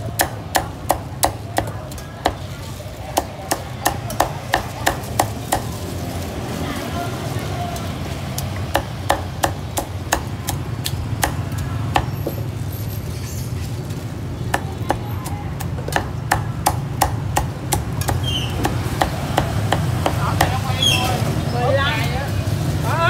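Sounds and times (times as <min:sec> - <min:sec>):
cleaver chopping on a board: 0:08.7 - 0:12.1, 0:14.5 - 0:20.6.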